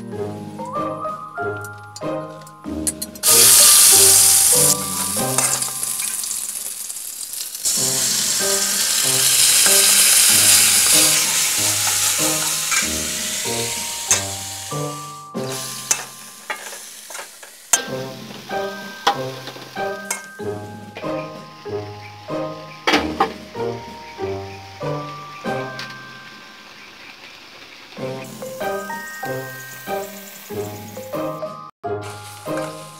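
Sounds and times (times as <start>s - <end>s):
food sizzling in hot oil: 3.2s - 31.4s, 32.0s - 32.9s
spoon scraping a wok: 7.7s - 14.4s.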